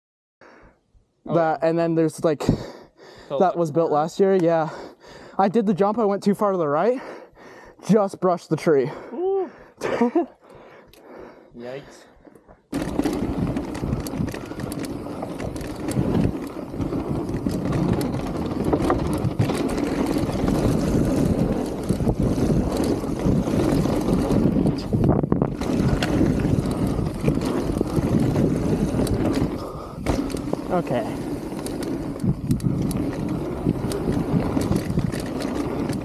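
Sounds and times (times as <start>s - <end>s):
bike knocking and rattling: 12.7s - 36.0s
tyres rolling over dirt trail: 12.7s - 36.0s
wind on microphone: 12.8s - 36.0s.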